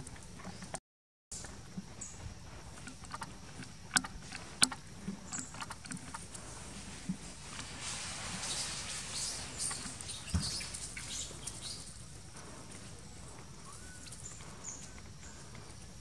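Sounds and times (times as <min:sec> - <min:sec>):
bird chirps: 0:08.4 - 0:12.0.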